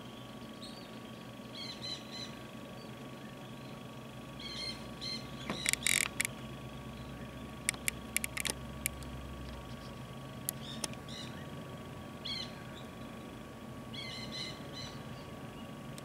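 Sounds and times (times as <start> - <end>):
ducks whistling: 4.4 - 6.1, 12.2 - 13.2, 13.9 - 15.6
sharp clicks: 5.5 - 6.4, 7.6 - 9.1.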